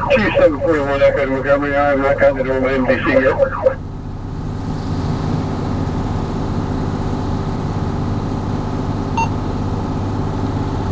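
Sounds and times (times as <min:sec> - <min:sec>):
diesel fire engine idling: 0:00.0 - 0:10.9.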